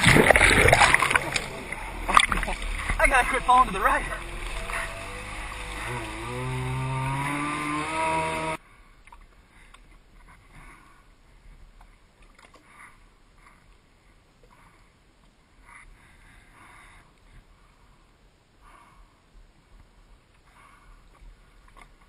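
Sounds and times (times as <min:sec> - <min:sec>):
jet ski engine revving: 0:00.0 - 0:08.6
soft water sounds: 0:00.0 - 0:22.0.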